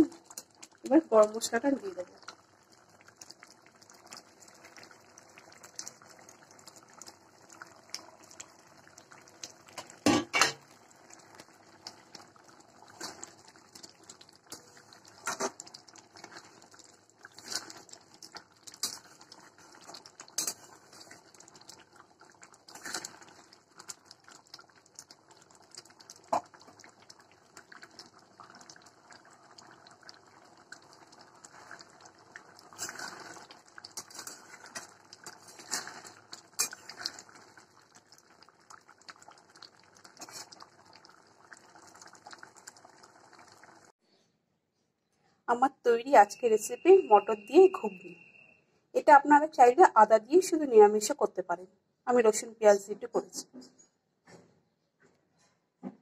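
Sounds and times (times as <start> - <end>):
curry simmering: 0.0 - 44.0
spatula scraping a metal pan: 35.4 - 37.1.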